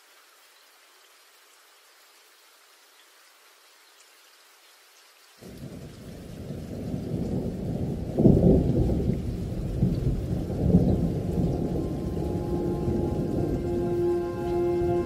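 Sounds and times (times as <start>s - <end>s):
rain hiss: 0.0s - 15.0s
rolling thunder: 5.4s - 15.0s.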